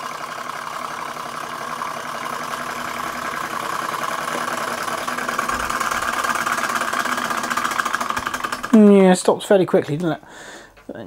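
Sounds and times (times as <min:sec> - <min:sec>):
hot air engine beating: 0:00.0 - 0:08.9.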